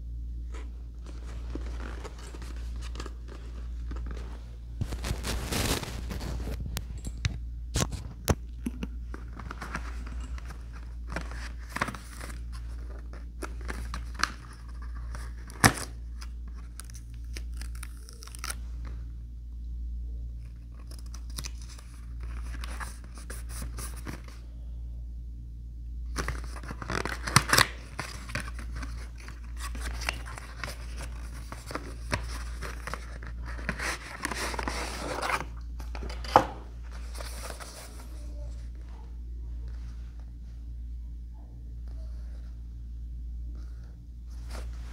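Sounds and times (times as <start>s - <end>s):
papery scraping: 0.5s - 6.8s, 26.1s - 38.6s.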